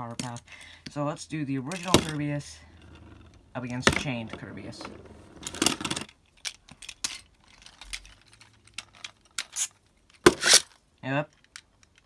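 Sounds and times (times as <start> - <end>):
spinning tops scraping rattle: 1.7 - 6.1.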